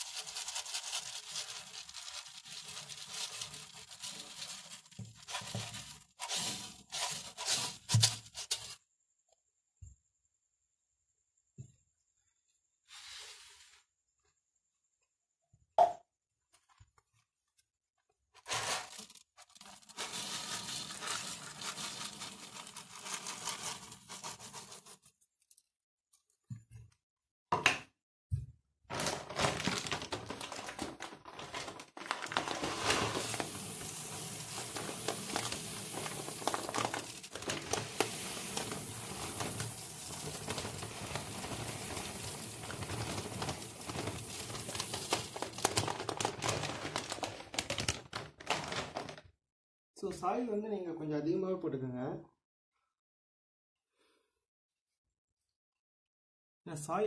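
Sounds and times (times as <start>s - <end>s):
soil granules poured into glass tank: 0.0s - 8.8s, 18.4s - 25.1s, 28.9s - 49.1s.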